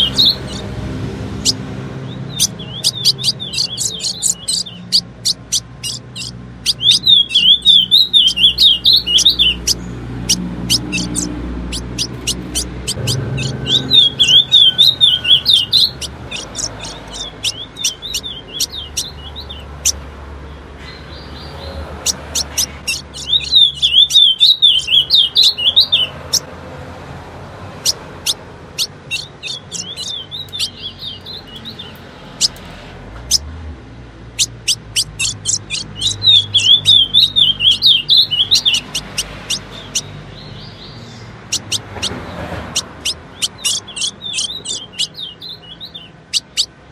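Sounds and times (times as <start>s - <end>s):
bird warbling twittering phrases: 0.0s - 0.7s, 1.3s - 20.0s, 21.2s - 26.5s, 27.8s - 32.6s, 34.4s - 46.8s
bird chip notes: 0.0s - 20.0s, 22.0s - 26.4s, 28.3s - 32.6s, 34.4s - 40.1s.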